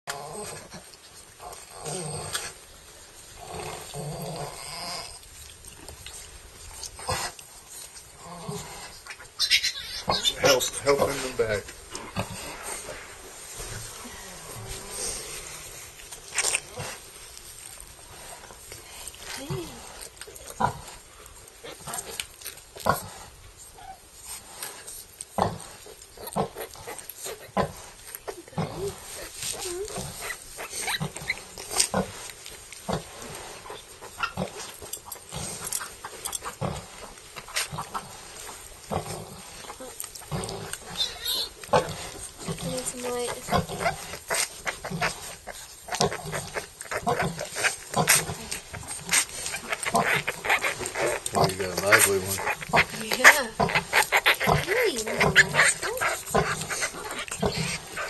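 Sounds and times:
sow grunting: 0:08.2 - 0:13.1, 0:38.9 - 0:58.0.

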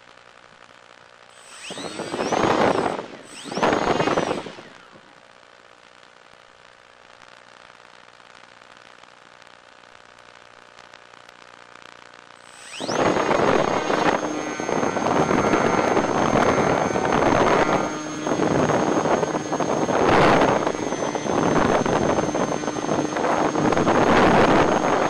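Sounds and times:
high-pitched whine: 0:01.2 - 0:06.0, 0:12.4 - 0:25.0
electric motors running: 0:01.3 - 0:05.2, 0:12.4 - 0:25.0.

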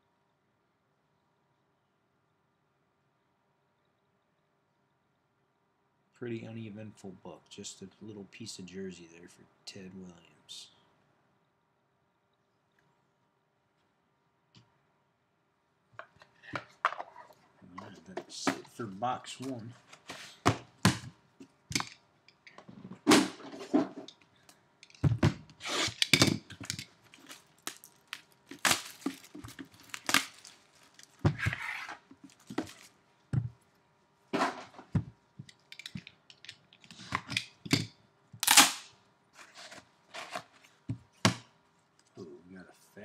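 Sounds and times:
plastic wrapping tearing: 0:25.6 - 0:33.0.

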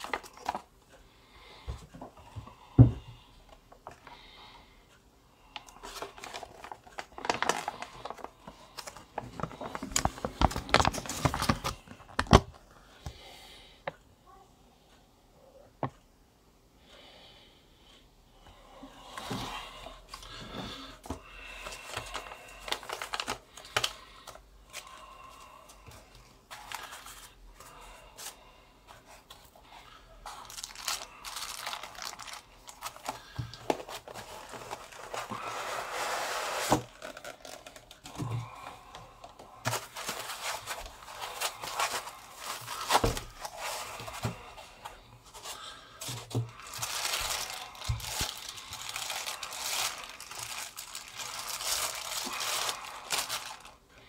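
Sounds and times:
paper and plastic rustling: 0:00.0 - 0:00.7, 0:05.6 - 0:12.6, 0:19.2 - 0:25.0, 0:25.9 - 0:28.4, 0:29.1 - 0:38.7, 0:39.3 - 0:53.8.

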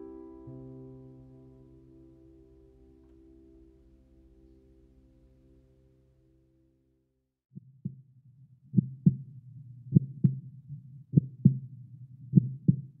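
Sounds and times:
low hum: 0:00.0 - 0:07.0
low heartbeat-like double thumps: 0:08.8 - 0:09.3, 0:09.9 - 0:10.5, 0:11.1 - 0:11.7, 0:12.3 - 0:13.0.

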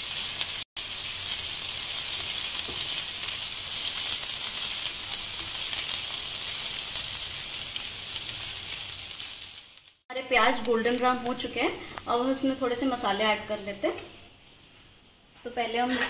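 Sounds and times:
onions sizzling in hot oil: 0:00.0 - 0:14.8.

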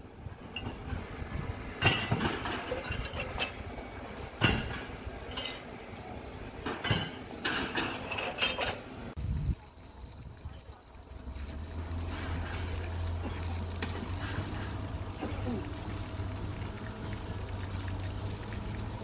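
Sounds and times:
low steady rumble: 0:09.0 - 0:19.0.

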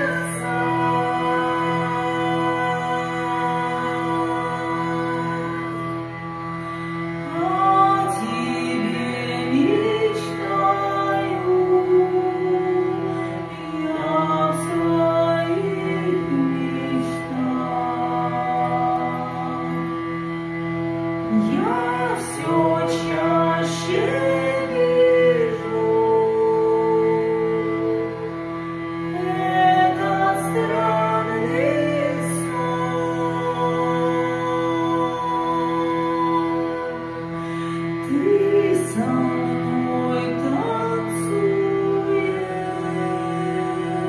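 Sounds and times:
woman singing: 0:00.0 - 0:06.2, 0:07.1 - 0:20.0, 0:21.3 - 0:28.3, 0:29.0 - 0:44.0
hurdy-gurdy drones: 0:00.0 - 0:44.0
woman singing slow melody: 0:29.0 - 0:44.0.

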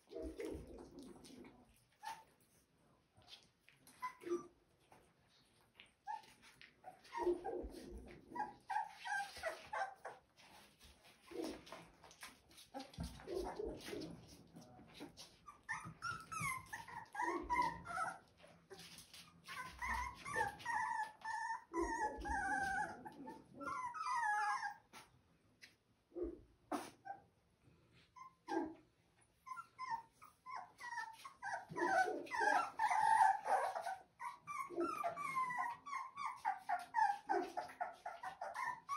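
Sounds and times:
puppies whining and squealing: 0:03.9 - 0:05.0, 0:05.8 - 0:14.3, 0:15.1 - 0:25.1, 0:28.1 - 0:38.9.

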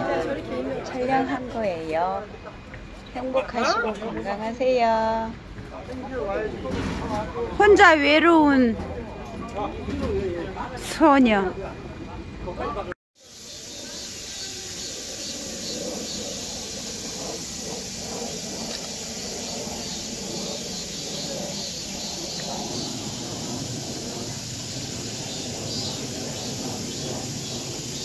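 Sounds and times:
faint distant voices: 0:11.6 - 0:24.9
steady high hiss: 0:13.2 - 0:28.0.

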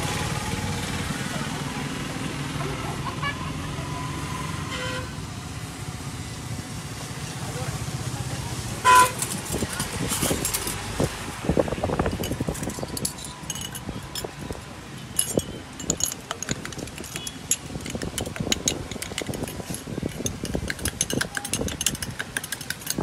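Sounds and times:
spoons clinking against glasses: 0:09.1 - 0:11.1, 0:12.0 - 0:23.0.

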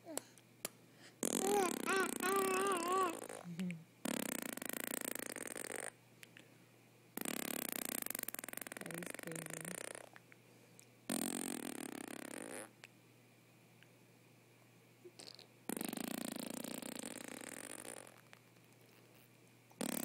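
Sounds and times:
baby blowing raspberries: 0:01.2 - 0:03.5.

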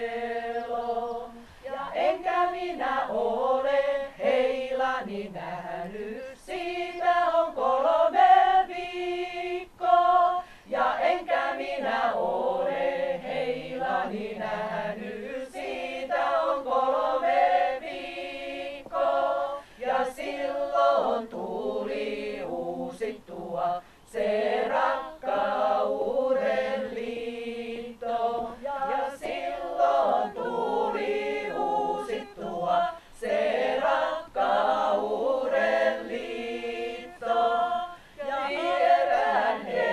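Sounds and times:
women singing a cappella: 0:00.0 - 0:39.9.

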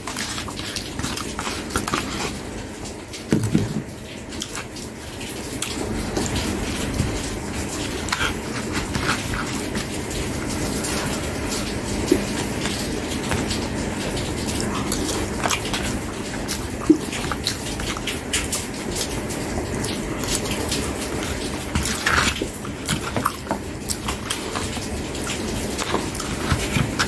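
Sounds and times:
chewing and mouth smacks: 0:00.0 - 0:02.4, 0:07.8 - 0:27.0.

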